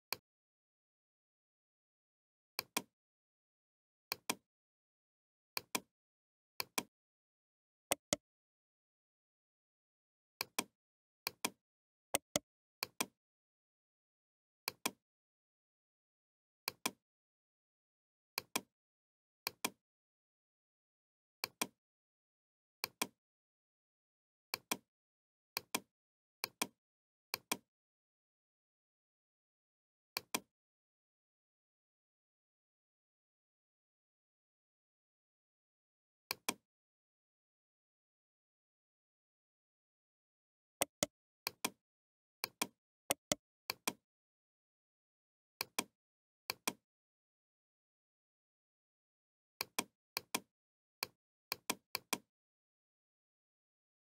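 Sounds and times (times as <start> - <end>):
computer mouse button clicking: 7.9 - 8.2, 12.2 - 12.4, 40.8 - 41.8, 42.5 - 44.0.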